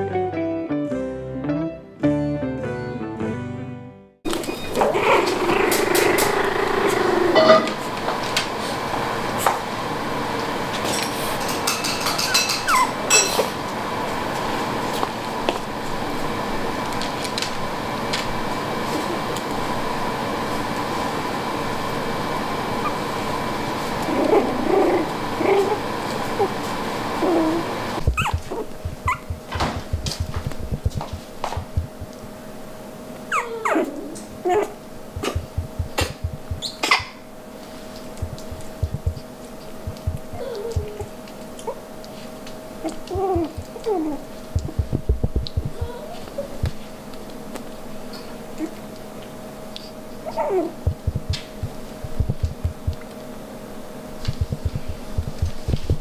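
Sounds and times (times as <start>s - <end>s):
puppy squeaks: 12.3s - 13.0s, 28.0s - 29.4s, 33.3s - 33.9s
puppy whimpering and whining: 12.7s - 13.0s, 22.8s - 23.0s, 24.0s - 25.8s, 27.2s - 29.4s, 33.3s - 35.5s, 42.8s - 44.2s, 50.2s - 51.4s
high squeaks: 28.2s - 29.3s.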